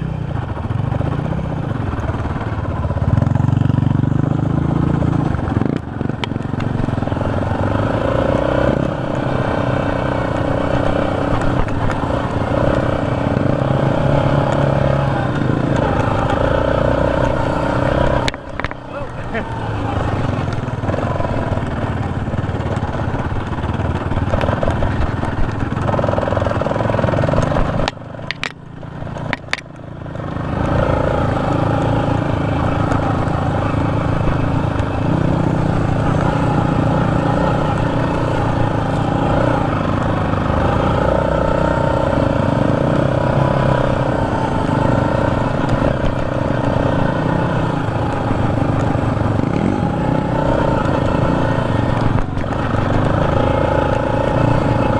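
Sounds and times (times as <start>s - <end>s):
atv engine under throttle: 0.0s - 54.9s
sharp clicks: 27.3s - 32.0s.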